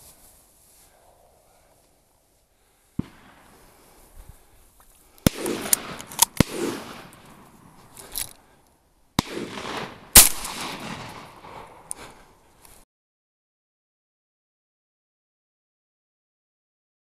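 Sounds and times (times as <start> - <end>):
shotgun shots with echo: 5.3 - 7.2, 9.2 - 11.8.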